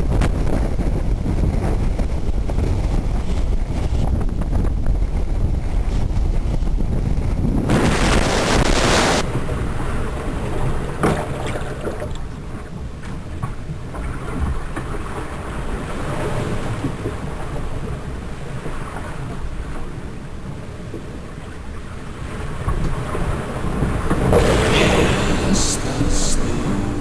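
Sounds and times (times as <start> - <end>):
wind buffeting microphone: 0.0 - 11.5
water rushing along hull: 0.0 - 27.0.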